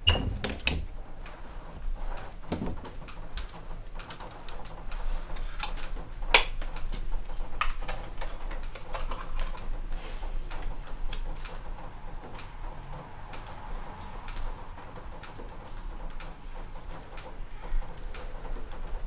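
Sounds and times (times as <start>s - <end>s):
sharp handling clicks and taps: 2.5s - 9.7s.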